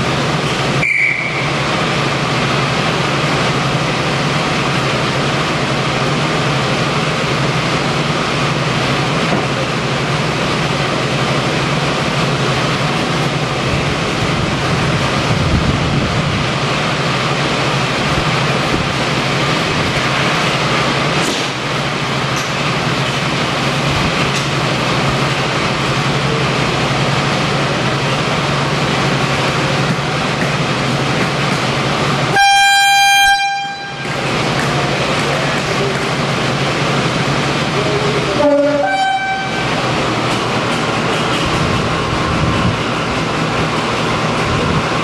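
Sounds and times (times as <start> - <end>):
diesel locomotive engines running: 0.0 - 45.0
brief sharp high tone: 0.8 - 1.6.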